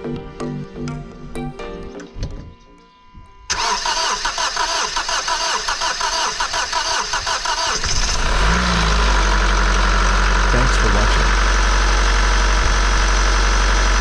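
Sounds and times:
diesel engine idling: 0:03.5 - 0:14.0
starter motor cranking engine: 0:03.5 - 0:14.0.

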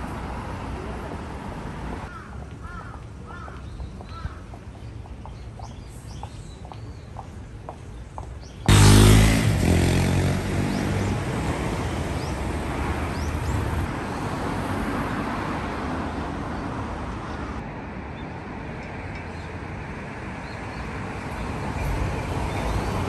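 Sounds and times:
steady traffic hum: 0:00.0 - 0:23.0
car passing: 0:08.7 - 0:17.6.

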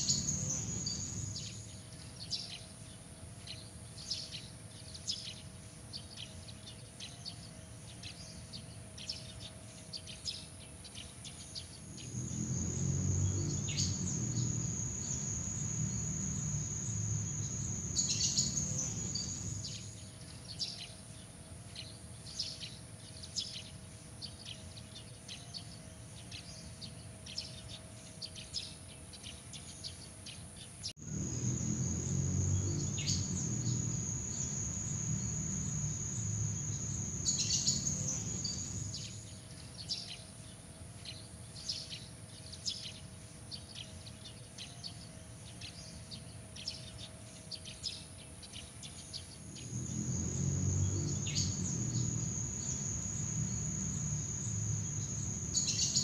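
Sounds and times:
short insect chirps: 0:00.0 - 0:01.8, 0:11.6 - 0:20.1, 0:31.0 - 0:39.4, 0:49.3 - 0:56.0
night insects trilling: 0:00.0 - 0:02.5, 0:11.6 - 0:20.1, 0:31.0 - 0:39.6, 0:48.9 - 0:56.0.

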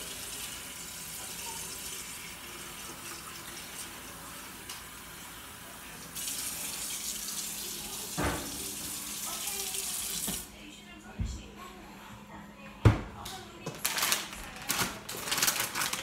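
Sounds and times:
faucet running into metal pot: 0:00.0 - 0:05.2, 0:06.0 - 0:10.4.

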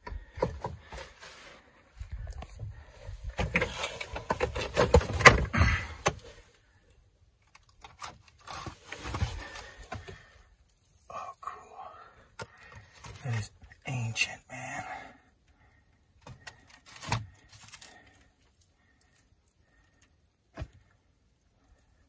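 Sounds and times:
rustling and scraping with clicks: 0:00.0 - 0:06.6, 0:07.4 - 0:11.1, 0:12.3 - 0:13.7, 0:16.2 - 0:21.9.

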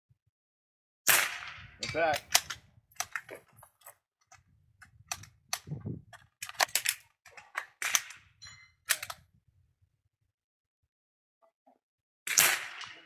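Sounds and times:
rifle shots cracking: 0:01.1 - 0:03.2, 0:12.3 - 0:13.0.

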